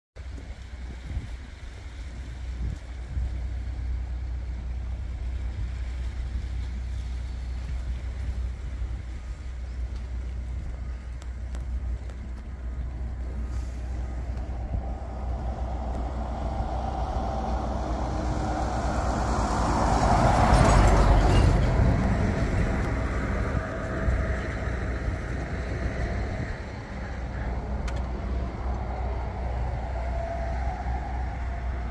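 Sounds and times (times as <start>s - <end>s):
traffic rumble: 0.2s - 31.9s
vehicle passing: 13.5s - 31.9s.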